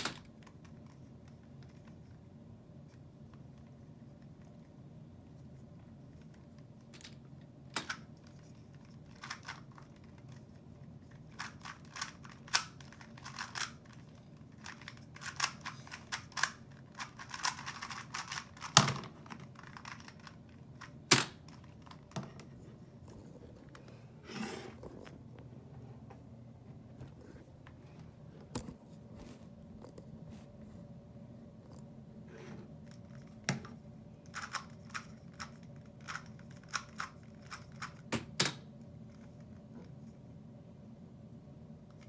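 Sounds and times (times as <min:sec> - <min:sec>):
plastic puzzle cube clicking: 0:11.3 - 0:22.0.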